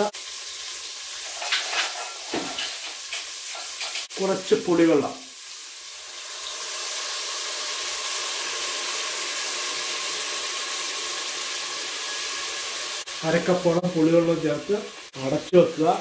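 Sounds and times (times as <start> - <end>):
fish sizzling in hot oil: 0.0 - 16.0.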